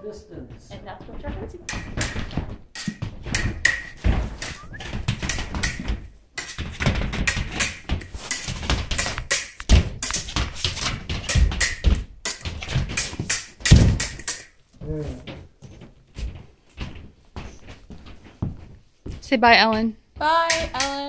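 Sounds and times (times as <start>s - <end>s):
heavy thumps: 0.0s - 21.0s
irregular tapping and knocking: 0.0s - 21.0s.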